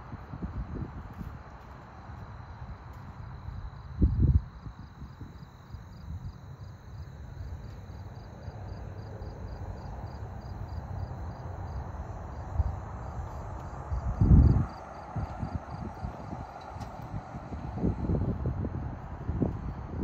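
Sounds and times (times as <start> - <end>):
insects chirping: 0.1 - 20.0
thin continuous whine: 2.1 - 20.0
low rumble on microphone: 8.5 - 20.0.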